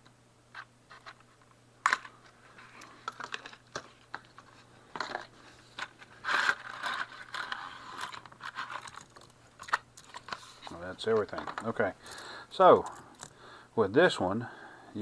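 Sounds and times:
cardboard rustling and scraping: 0:02.4 - 0:09.2, 0:10.1 - 0:11.9.

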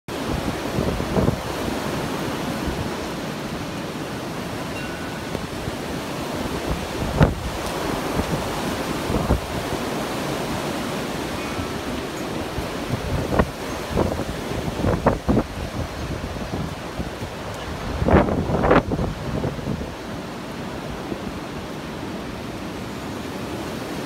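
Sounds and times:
wind buffeting microphone: 0:00.1 - 0:21.4
wind rushing through trees: 0:00.1 - 0:24.0.

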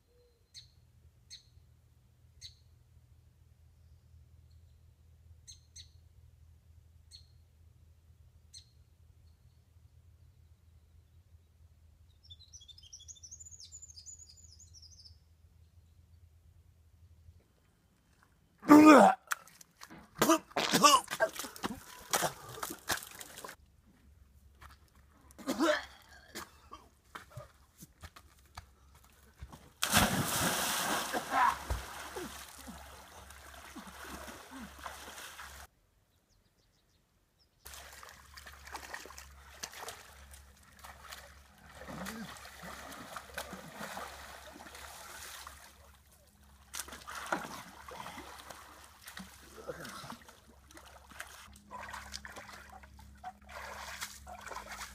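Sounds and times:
brush and twigs crunching: 0:21.1 - 0:23.6
rush of splashing water: 0:29.8 - 0:35.7, 0:37.7 - 0:45.8, 0:46.8 - 0:52.9.

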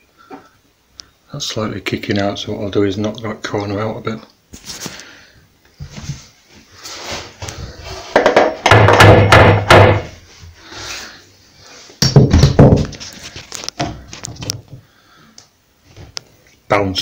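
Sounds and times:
hammer thudding on wood: 0:08.2 - 0:10.2.

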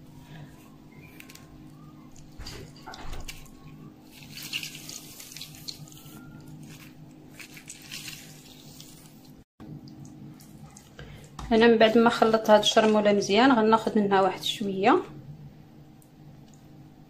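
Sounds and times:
lemon juice dripping and spattering: 0:04.1 - 0:06.0.

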